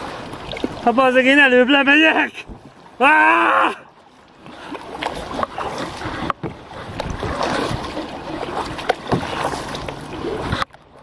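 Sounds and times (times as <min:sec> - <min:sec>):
water splashing and rushing: 0:00.0 - 0:11.0
paddle knocks: 0:04.5 - 0:09.9.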